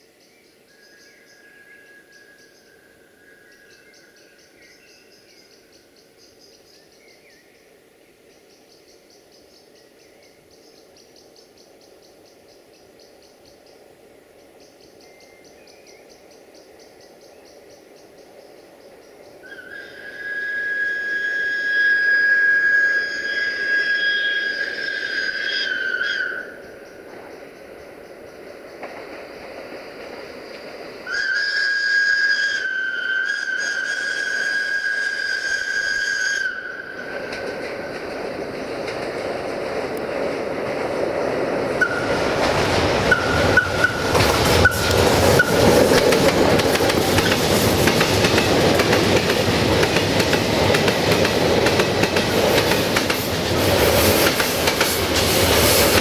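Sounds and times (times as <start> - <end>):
insects chirping: 0.0 - 56.0
train rumble: 16.1 - 56.0
train whistle blasts: 19.4 - 26.6, 31.0 - 37.2, 41.8 - 42.3, 43.1 - 45.8.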